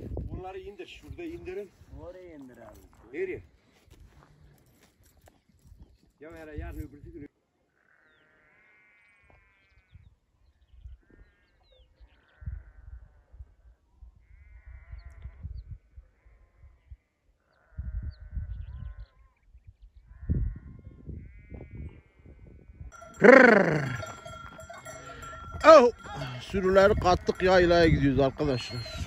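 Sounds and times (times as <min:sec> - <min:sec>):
wind rumbling on microphone: 0:00.0 - 0:02.1, 0:12.3 - 0:16.1, 0:17.8 - 0:22.9, 0:24.3 - 0:29.0
sheep bells ringing: 0:22.9 - 0:29.0
distant sheep bleating: 0:23.0 - 0:29.0
sheep bleating close by: 0:23.0 - 0:29.0.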